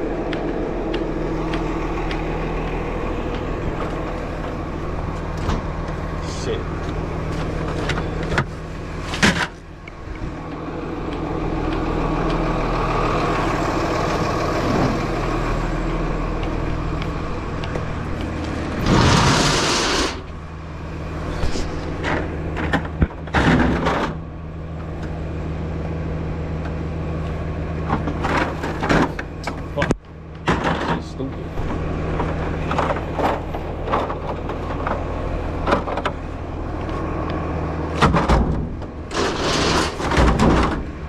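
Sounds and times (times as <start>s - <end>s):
truck engine idling: 0.0s - 41.0s
loud hiss: 18.9s - 20.2s
knocks and clatter: 21.4s - 24.3s, 27.8s - 36.2s, 37.9s - 41.0s.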